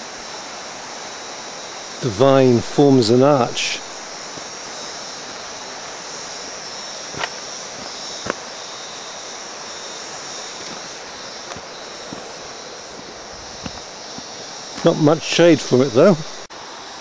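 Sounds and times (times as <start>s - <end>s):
outdoor background hiss: 0.0s - 17.0s
footsteps on rocky track: 3.9s - 8.7s, 10.1s - 15.2s.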